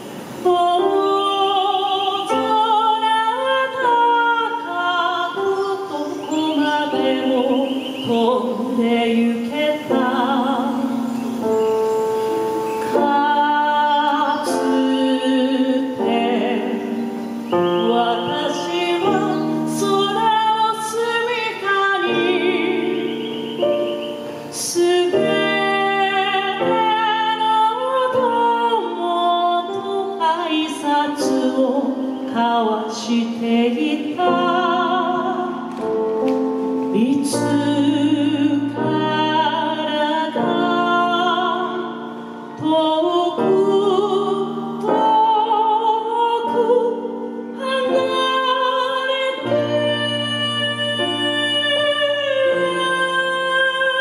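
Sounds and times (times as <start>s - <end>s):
instrumental accompaniment with piano: 0.0s - 54.0s
woman singing with vibrato: 0.0s - 54.0s.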